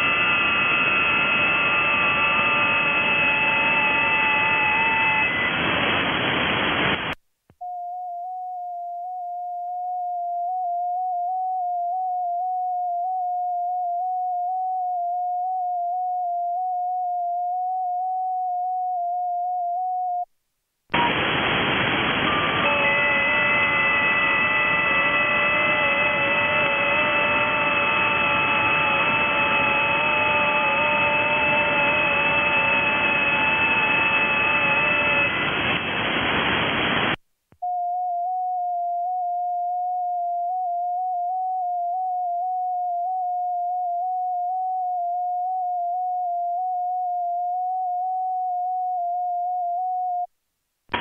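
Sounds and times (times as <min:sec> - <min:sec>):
radio receiver hiss: 0:00.0 - 0:07.2, 0:20.9 - 0:37.2
radio transmit tone: 0:00.0 - 0:07.2, 0:20.9 - 0:37.2
warbling digital signal tones: 0:22.2 - 0:35.8.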